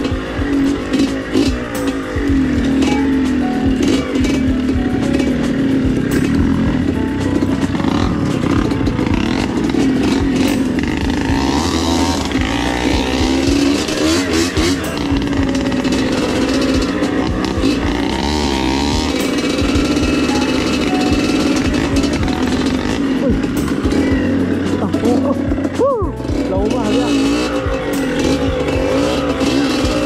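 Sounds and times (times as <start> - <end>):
dirt bike engine revving: 0.0 - 30.0.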